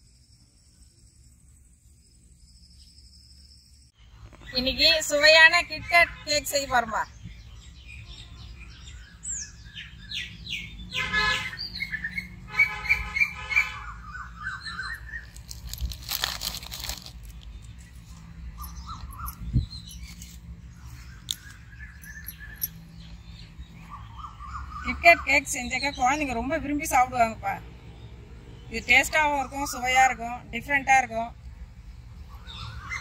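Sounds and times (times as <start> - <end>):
birds chirping and whistling: 2.5 - 15.9, 17.4 - 27.1, 32.0 - 33.0.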